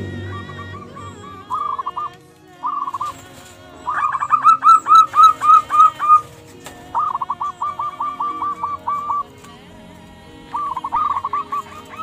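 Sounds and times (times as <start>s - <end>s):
doves cooing: 0.0s - 12.0s.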